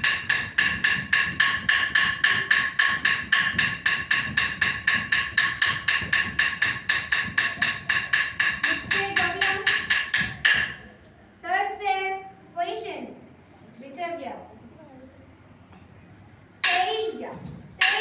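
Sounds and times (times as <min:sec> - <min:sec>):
bare feet stamping on floor: 0:00.0 - 0:10.8.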